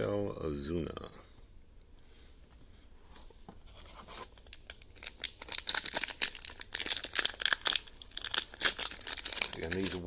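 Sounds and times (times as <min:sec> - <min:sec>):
plastic wrapper crinkling: 0:03.8 - 0:10.0.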